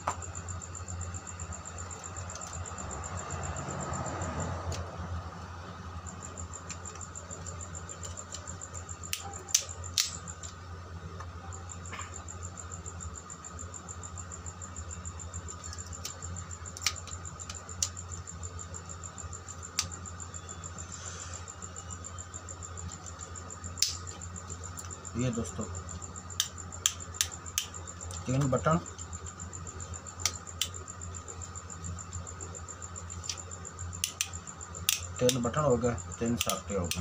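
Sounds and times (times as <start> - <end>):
steady low hum: 0.0 - 37.0
plastic switch modules clicking: 36.4 - 37.0.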